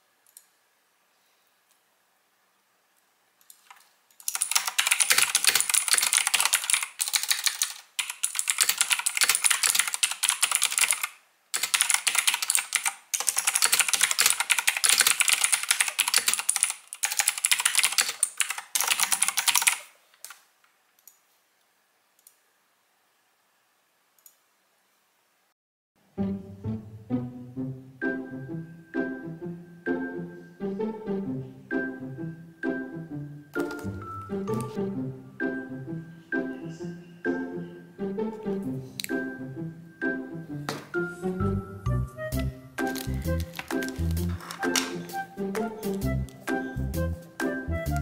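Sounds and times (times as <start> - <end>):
mechanical keyboard typing: 3.5 - 20.4, 42.8 - 46.0
music: 26.0 - 48.0.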